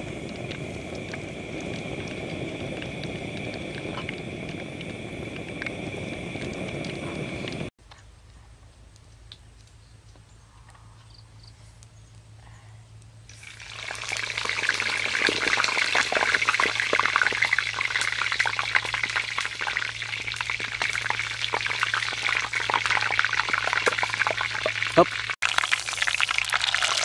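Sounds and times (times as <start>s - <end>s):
birds frying in hot oil: 0.0s - 7.7s, 13.3s - 27.0s.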